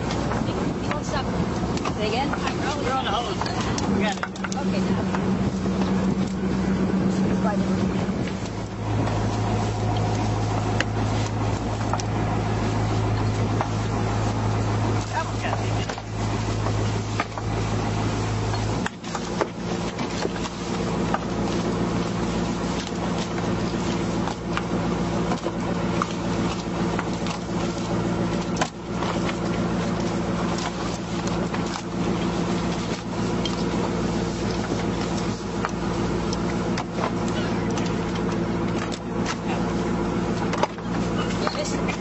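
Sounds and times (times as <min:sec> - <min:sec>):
knocks and clicks of crabs handled: 0:00.0 - 0:05.3, 0:08.2 - 0:12.2, 0:15.1 - 0:17.6, 0:22.9 - 0:33.7, 0:34.4 - 0:39.7, 0:40.3 - 0:42.0
boat engine running: 0:00.0 - 0:42.0.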